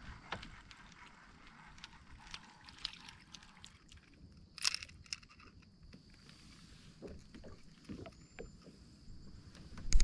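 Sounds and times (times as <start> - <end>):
water dripping: 0.7 - 4.2.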